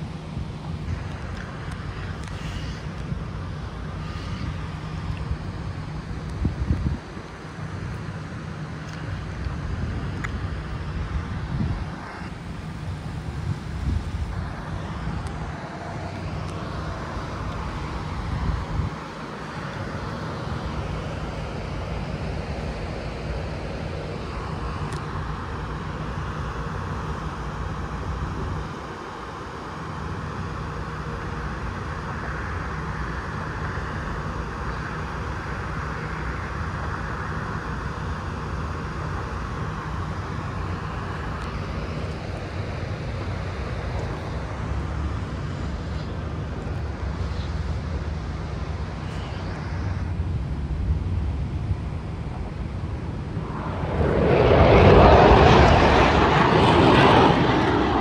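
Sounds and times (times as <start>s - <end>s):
outdoor rumble and hiss: 0.0s - 58.0s
wind buffeting microphone: 0.2s - 7.9s, 9.1s - 22.2s, 52.4s - 58.0s.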